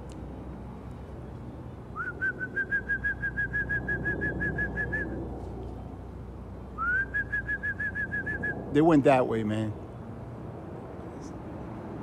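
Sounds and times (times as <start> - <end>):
trilling whistle: 2.0 - 5.2, 6.8 - 8.6.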